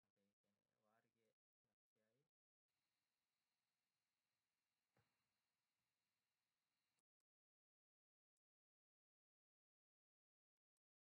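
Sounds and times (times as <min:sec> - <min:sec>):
faint voice: 0:00.0 - 0:02.6.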